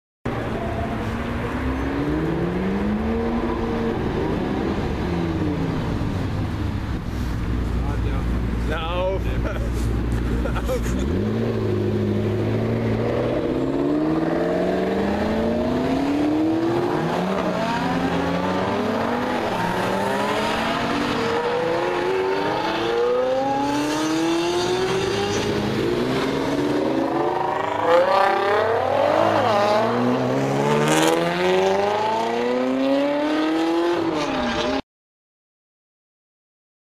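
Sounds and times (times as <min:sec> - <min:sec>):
supercar engines accelerating: 0:00.3 - 0:34.8.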